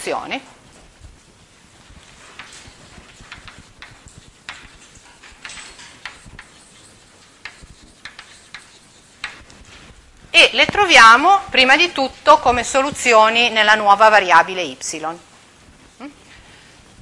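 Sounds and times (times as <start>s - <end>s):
chalk tapping on blackboard: 1.9s - 10.0s.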